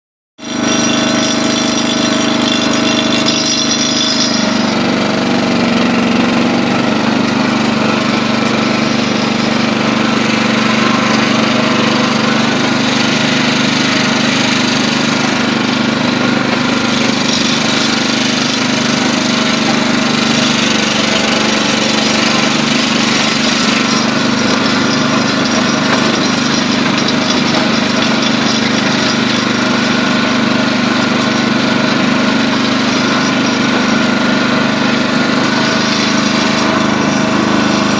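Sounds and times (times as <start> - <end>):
tractor engine running: 0.4 - 37.9.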